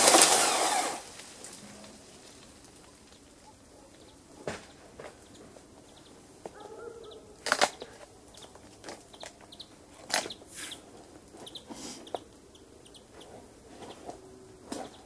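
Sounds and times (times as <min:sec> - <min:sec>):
bird chirps: 0:05.2 - 0:15.0.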